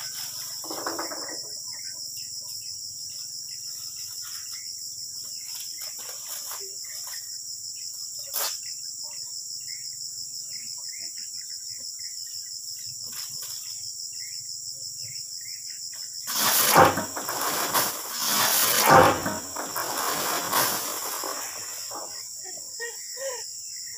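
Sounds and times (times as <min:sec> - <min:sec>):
insect chorus: 0:00.0 - 0:23.9
small rustles: 0:03.1 - 0:07.2, 0:16.3 - 0:22.2
fruit rattling out of a sack: 0:16.3 - 0:22.2.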